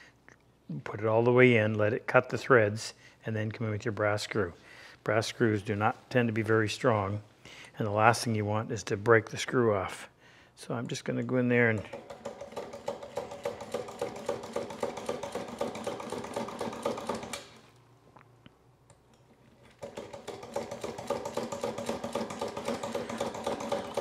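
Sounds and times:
push drill ratchet clicking: 0:11.9 - 0:17.6.

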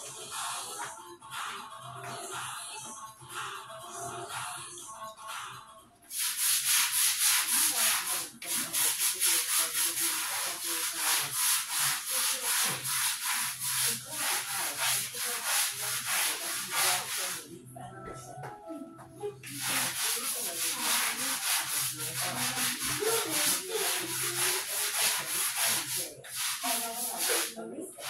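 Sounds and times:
brush scrubbing tile grout: 0:06.1 - 0:17.5, 0:19.4 - 0:28.0.

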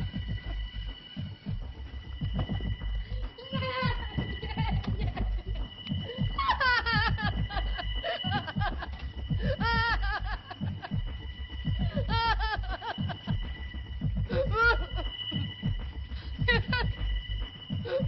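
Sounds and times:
low thudding: 0:01.5 - 0:08.0.

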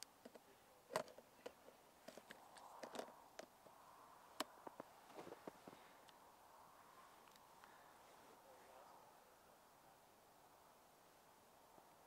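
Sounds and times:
gloved hands handling a camera: 0:00.3 - 0:03.2.

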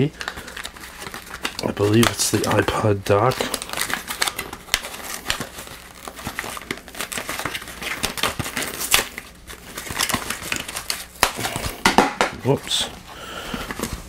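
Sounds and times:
loud cardboard crackle: 0:00.0 - 0:14.0.

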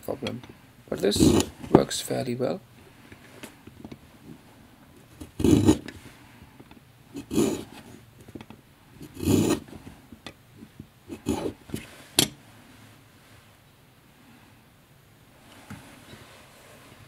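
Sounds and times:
sharpener blade scraping pencil wood: 0:01.1 - 0:01.6, 0:05.2 - 0:06.0, 0:07.2 - 0:07.9, 0:09.0 - 0:09.8, 0:11.1 - 0:11.9.

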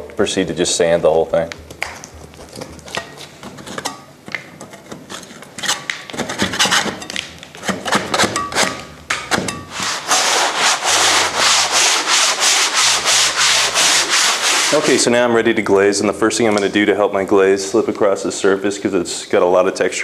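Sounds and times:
putty knife scraping plaster: 0:04.7 - 0:15.0
sandpaper rubbing plaster: 0:09.7 - 0:15.1.

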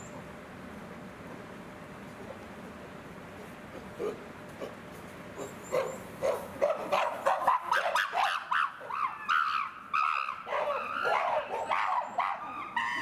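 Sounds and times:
chimpanzees screaming: 0:07.4 - 0:13.0.

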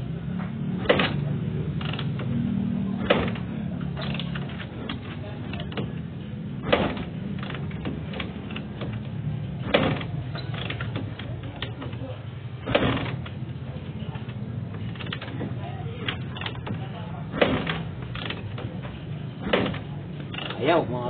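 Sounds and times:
kick lever clanking: 0:00.8 - 0:02.4, 0:03.0 - 0:20.8
engine kick-start kicks: 0:09.6 - 0:13.4.

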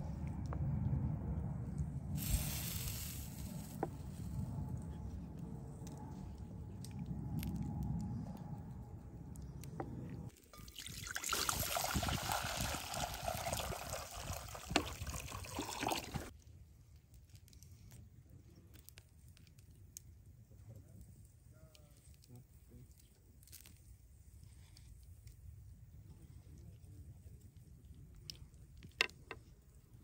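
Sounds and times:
low rumble: 0:00.0 - 0:10.3
water pouring into a pot: 0:10.4 - 0:16.3.

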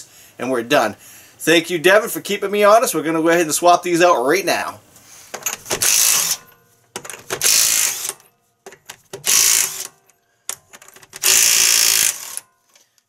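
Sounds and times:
impact wrench hammering: 0:05.4 - 0:12.4.

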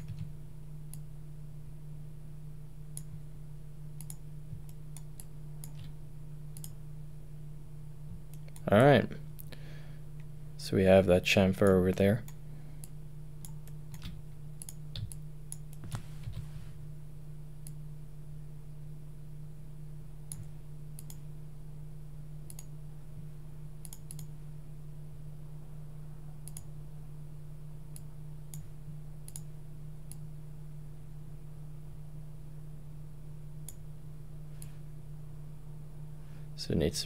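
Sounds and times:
steady low hum: 0:00.0 - 0:37.0
computer mouse clicking: 0:04.0 - 0:06.8, 0:08.3 - 0:08.7, 0:11.6 - 0:16.5, 0:20.3 - 0:21.2, 0:22.5 - 0:22.7, 0:23.8 - 0:24.3, 0:26.4 - 0:26.7, 0:29.3 - 0:29.5.

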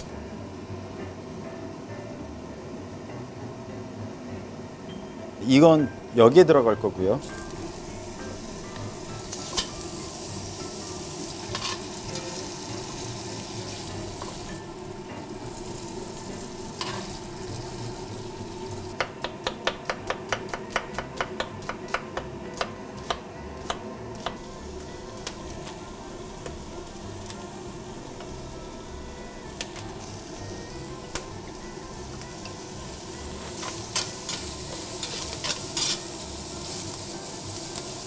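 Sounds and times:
bacon sizzling in a pot: 0:07.2 - 0:19.5, 0:24.4 - 0:38.0.

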